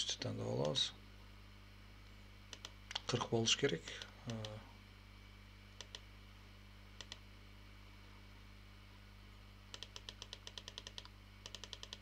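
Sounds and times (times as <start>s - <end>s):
faint steady hum: 0.0s - 12.0s
computer mouse clicks: 2.5s - 3.1s, 5.8s - 6.0s, 7.0s - 7.2s, 9.7s - 12.0s
scroll wheel clicking: 2.5s - 3.1s, 7.0s - 7.2s, 9.7s - 12.0s.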